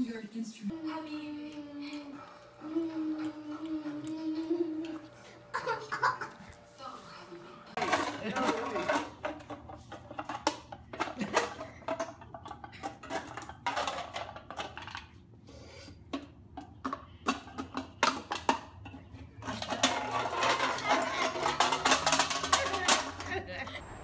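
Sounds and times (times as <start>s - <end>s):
metal can clattering on concrete: 7.8s - 15.2s, 16.1s - 23.6s.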